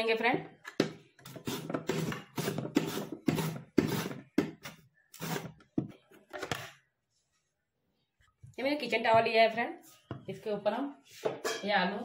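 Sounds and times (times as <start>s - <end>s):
potato scraping on mandoline slicer: 1.3s - 4.2s, 5.2s - 5.6s.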